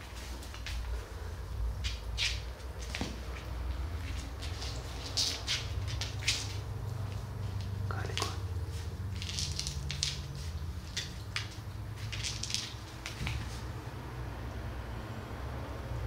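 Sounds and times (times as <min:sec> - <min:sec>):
cat claws tapping on floor: 0:09.1 - 0:13.6.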